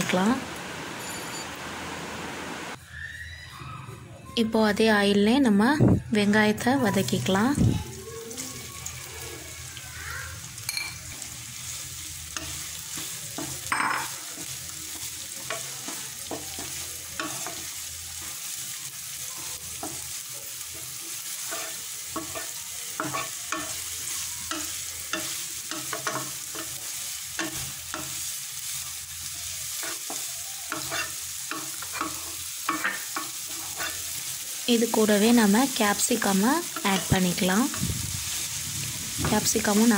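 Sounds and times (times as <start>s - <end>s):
onions sizzling in hot oil: 0.0s - 2.8s, 4.6s - 39.9s
spatula scraping and tapping pan: 12.3s - 18.4s, 19.7s - 28.2s, 29.8s - 34.0s, 36.7s - 37.8s.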